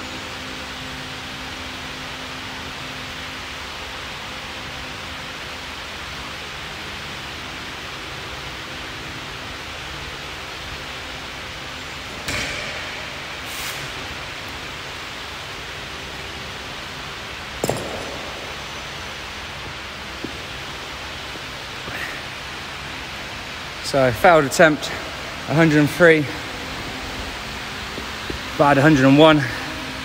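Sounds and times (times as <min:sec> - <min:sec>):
fans hissing: 0:06.4 - 0:30.0
belt dropped on rubber floor: 0:17.6 - 0:18.4.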